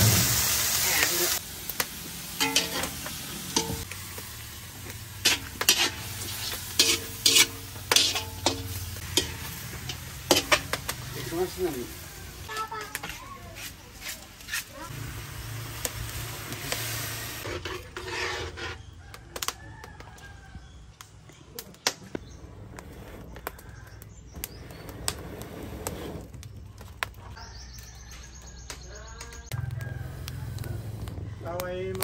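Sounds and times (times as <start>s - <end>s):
water hissing in a hot wok: 0.0s - 12.9s, 13.6s - 18.5s
wood fire crackling: 0.0s - 32.0s
birds chirping: 18.8s - 32.0s.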